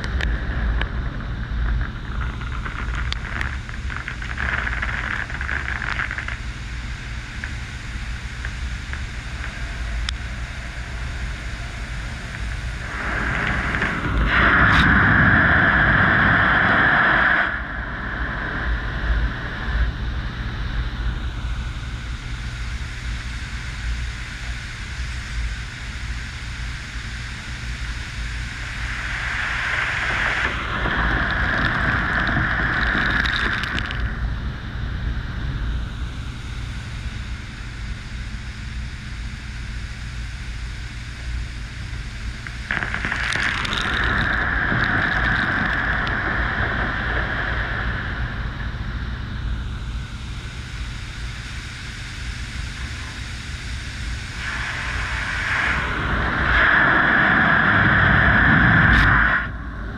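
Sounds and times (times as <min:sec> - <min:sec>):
car wash water and machinery: 0:00.0 - 0:59.9
low hum: 0:00.0 - 0:59.9.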